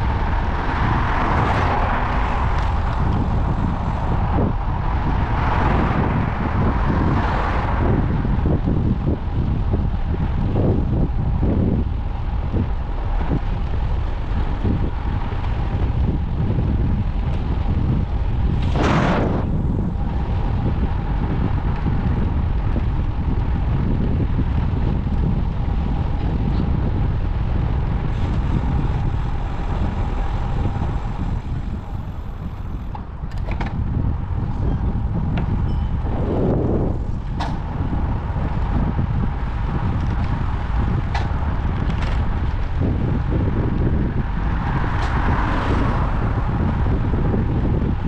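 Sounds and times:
wind buffeting microphone: 0:00.0 - 0:48.0.

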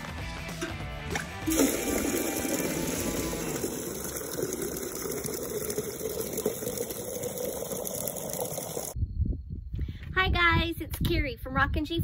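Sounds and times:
water gushing into watering can: 0:01.4 - 0:09.0.

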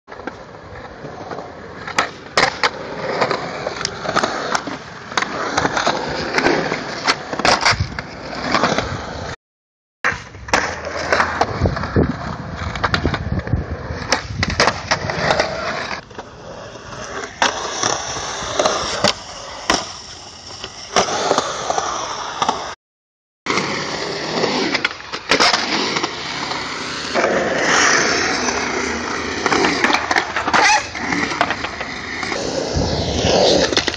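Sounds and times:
skateboard wheels rolling on concrete: 0:00.1 - 0:09.4, 0:10.0 - 0:22.8, 0:23.5 - 0:33.9
skateboard clacks: 0:28.4 - 0:32.4.

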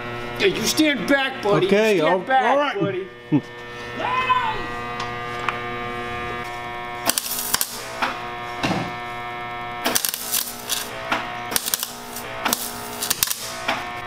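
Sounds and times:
welder electrical hum: 0:00.0 - 0:14.0
welding arc crackling: 0:04.7 - 0:14.0.

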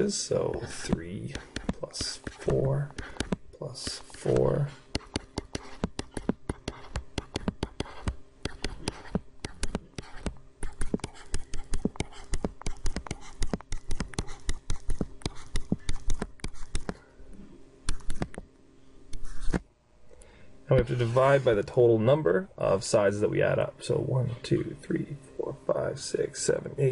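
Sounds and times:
stylus tapping on tablet: 0:01.3 - 0:02.4, 0:03.0 - 0:17.0.

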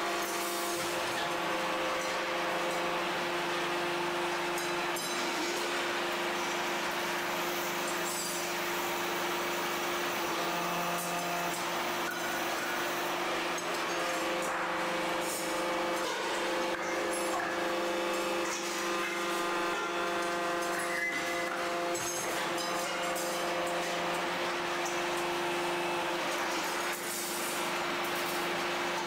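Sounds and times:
factory machinery humming: 0:00.0 - 0:29.0.

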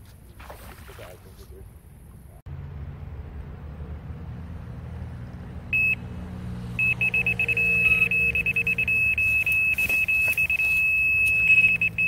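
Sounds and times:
bite alarm high beeps: 0:05.8 - 0:06.0, 0:06.8 - 0:12.0.

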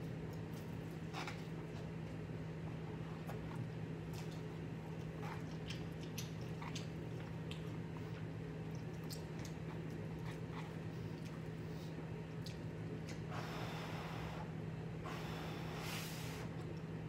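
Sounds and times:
chewing and mouth sounds: 0:00.0 - 0:13.3.

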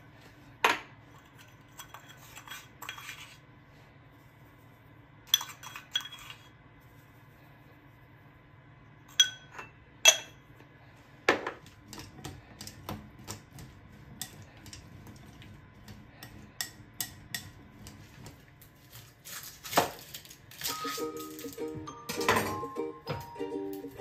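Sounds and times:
soft music with chimes: 0:20.7 - 0:24.0.

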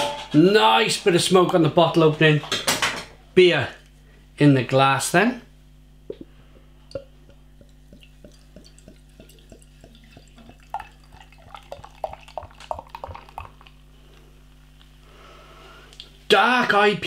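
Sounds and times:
beer dripping into a glass: 0:06.9 - 0:13.8.

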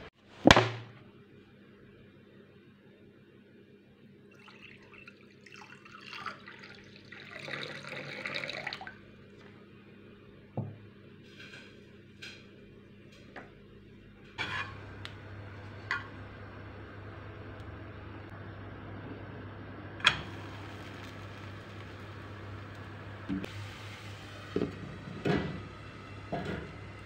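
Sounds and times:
low steady hum: 0:00.8 - 0:27.0
water running: 0:04.3 - 0:09.0, 0:20.0 - 0:27.0.

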